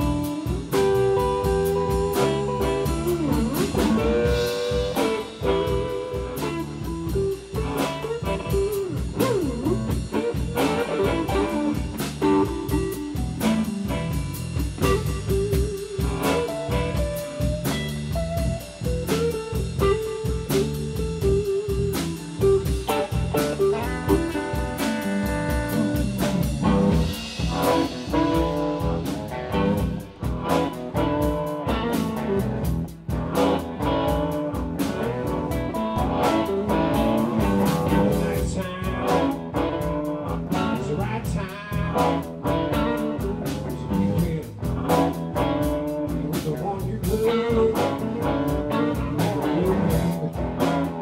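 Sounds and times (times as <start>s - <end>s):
drum hits: 0.0s - 40.0s
blues band playing: 0.0s - 51.0s
electric guitar lines: 0.0s - 51.0s.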